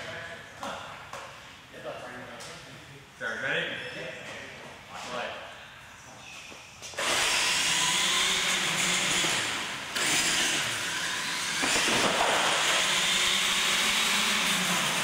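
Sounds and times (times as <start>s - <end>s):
toy truck motors whirring: 7.0s - 15.0s.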